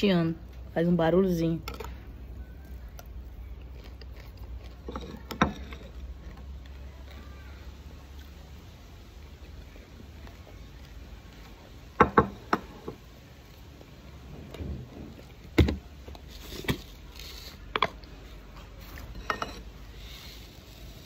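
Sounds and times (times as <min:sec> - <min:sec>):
person chewing and crunching food: 0:01.8 - 0:12.0.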